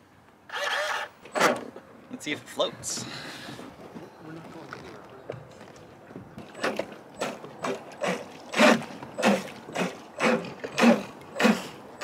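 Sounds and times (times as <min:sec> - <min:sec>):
water slapping against boat hull: 0:02.9 - 0:11.8.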